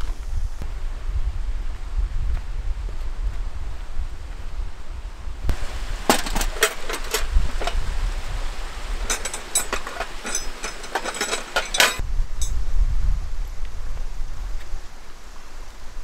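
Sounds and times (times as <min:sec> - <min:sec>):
low wind rumble: 0:00.0 - 0:16.0
metal tent pegs clinking: 0:05.5 - 0:08.0, 0:08.8 - 0:12.6.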